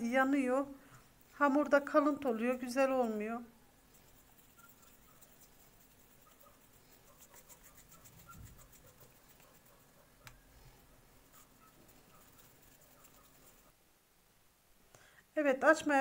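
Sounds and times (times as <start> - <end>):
hands patting and rubbing dough: 3.9 - 10.5, 11.2 - 13.7.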